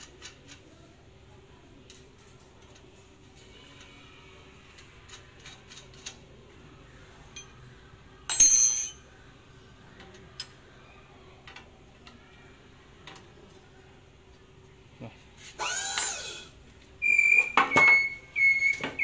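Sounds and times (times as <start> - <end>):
ringing steel clink: 8.3 - 9.1.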